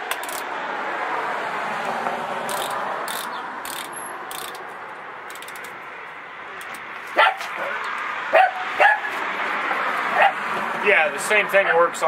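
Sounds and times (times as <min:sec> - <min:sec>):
scratchy rasps: 0:02.5 - 0:04.6
quick clicks: 0:02.5 - 0:04.7.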